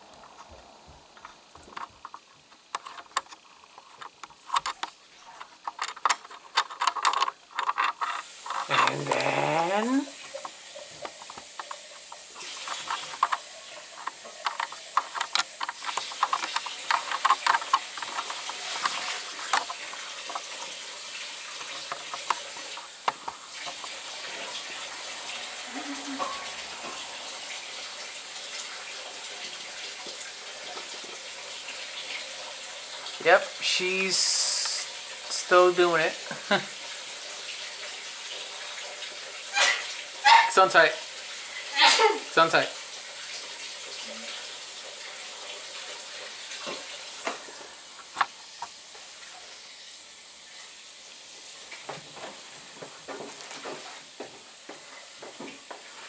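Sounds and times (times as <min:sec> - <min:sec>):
tap water running: 0:00.0 - 0:56.0
dishes clattering in a sink: 0:26.0 - 0:27.0.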